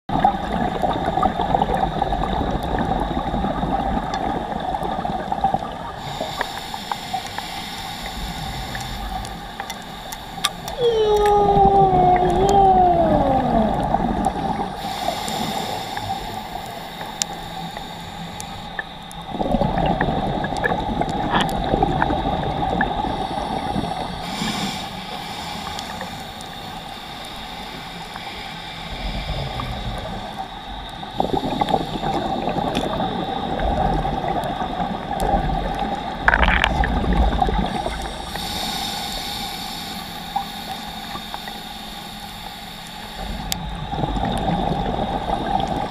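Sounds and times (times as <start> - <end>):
exhaled bubbles rumbling: 0.1 - 6.2, 10.7 - 17.4, 18.6 - 24.4, 28.9 - 38.6, 43.4 - 45.9
steady hum: 0.2 - 45.9
regulator hiss on inhale: 5.9 - 10.8, 14.3 - 19.3, 23.0 - 33.0, 37.6 - 43.8
falling whine: 10.8 - 14.8.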